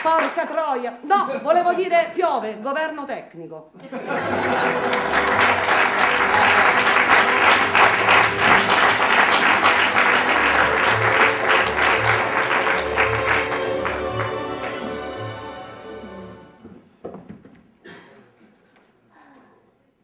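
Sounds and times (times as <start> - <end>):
audience applauding: 4.1 - 15.8.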